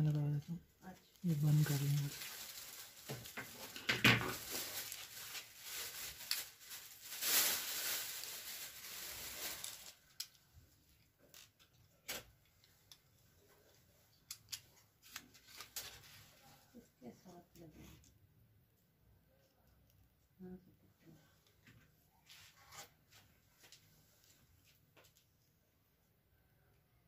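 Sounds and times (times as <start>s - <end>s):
plastic and cables rustling: 0.0s - 17.3s.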